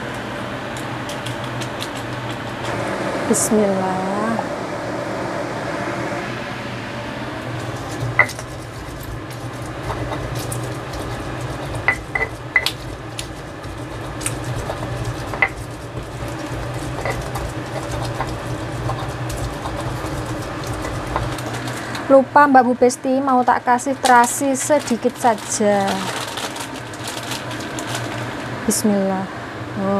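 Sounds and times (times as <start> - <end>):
low hum: 0.0 - 22.8
stone pestle grinding: 1.0 - 2.8, 7.4 - 22.0.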